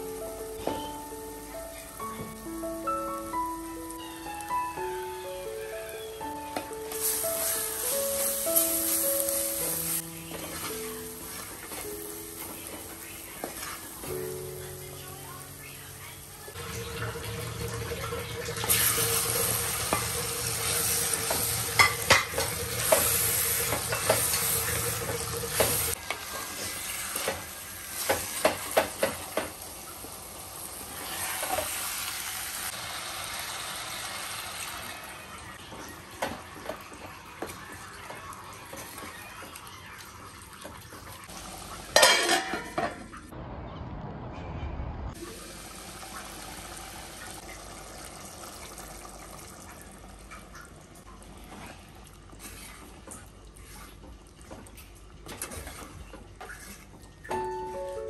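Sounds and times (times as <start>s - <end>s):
meat sizzling in a pot: 0.0s - 14.3s, 14.9s - 42.6s, 45.2s - 49.7s
steel lid clattering: 42.0s - 43.0s.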